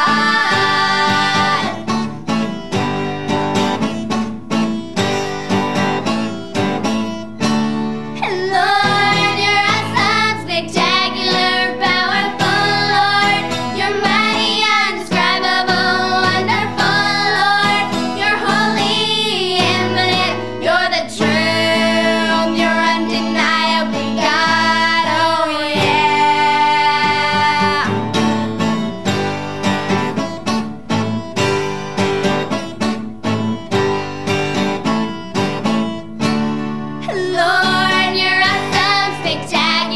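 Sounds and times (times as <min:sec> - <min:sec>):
girls singing in unison: 0:00.0 - 0:01.9, 0:08.2 - 0:28.2, 0:37.0 - 0:39.9
strummed acoustic guitar: 0:00.0 - 0:39.9.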